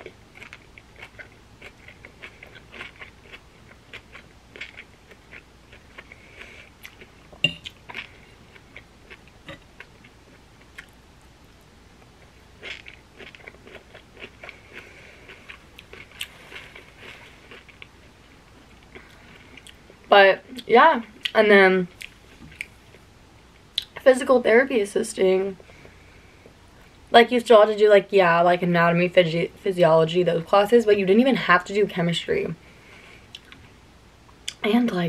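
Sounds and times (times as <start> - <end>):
person chewing and smacking: 0.0 - 11.0, 12.0 - 20.1, 33.3 - 33.7.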